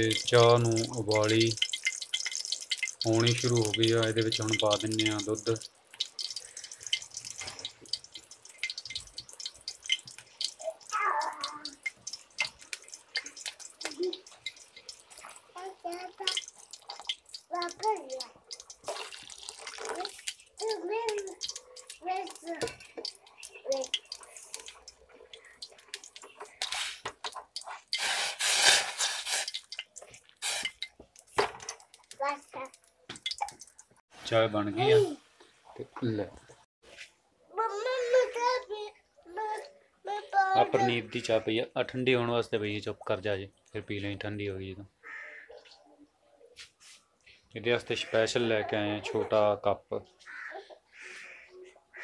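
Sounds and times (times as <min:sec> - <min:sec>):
water boiling in a pot: 0:00.0 - 0:36.3, 0:40.6 - 0:44.2.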